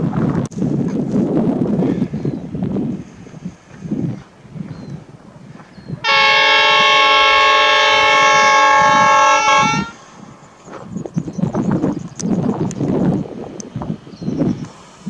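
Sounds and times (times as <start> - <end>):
train engine noise: 1.3 - 15.0
locomotive horn blast: 6.0 - 10.2.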